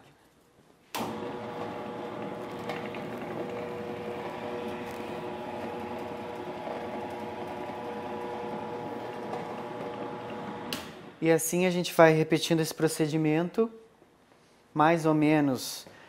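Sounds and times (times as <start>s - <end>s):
dough sheeter motor hum: 1.0s - 11.0s.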